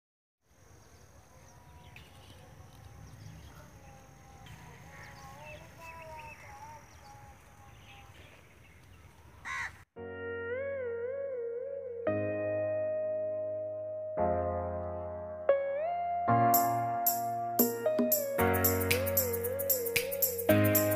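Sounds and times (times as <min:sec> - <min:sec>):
crows cawing: 0:09.4 - 0:09.8
background music: 0:10.0 - 0:20.9.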